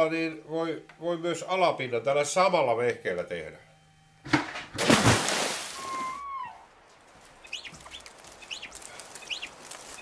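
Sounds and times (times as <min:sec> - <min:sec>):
faint outdoor background: 0:00.0 - 0:10.0
bird chirping: 0:07.2 - 0:10.0.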